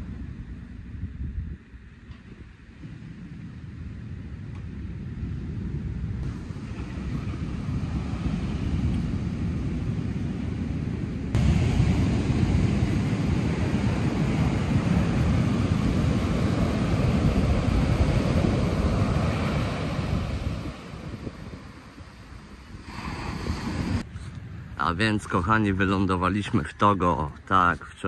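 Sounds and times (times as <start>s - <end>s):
wind rumble on microphone: 0.0s - 26.8s
ocean surf breaking on beach: 6.2s - 24.0s.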